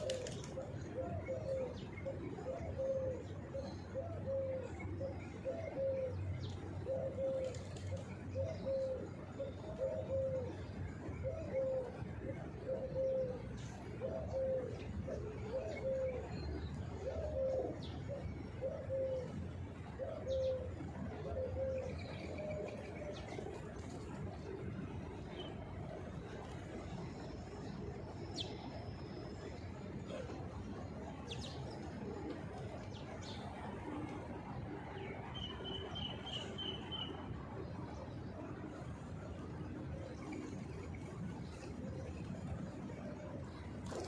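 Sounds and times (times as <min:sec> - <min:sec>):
pigeons cooing: 0:00.0 - 0:44.0.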